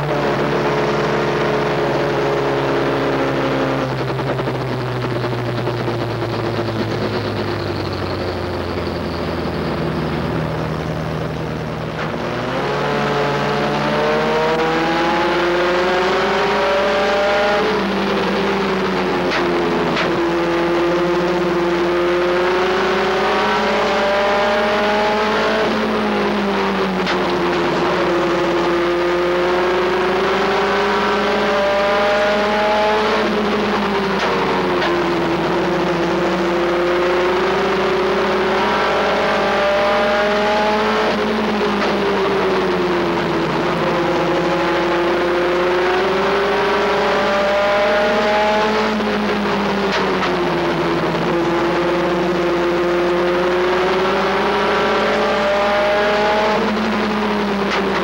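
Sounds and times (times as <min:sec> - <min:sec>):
truck engine revving: 0:00.0 - 0:58.0.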